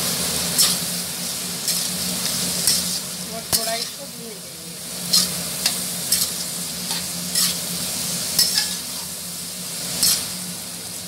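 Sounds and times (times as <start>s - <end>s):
vegetables sizzling in pan: 0.0s - 11.0s
spatula scraping pan: 5.0s - 7.7s, 8.4s - 9.1s, 10.0s - 10.4s.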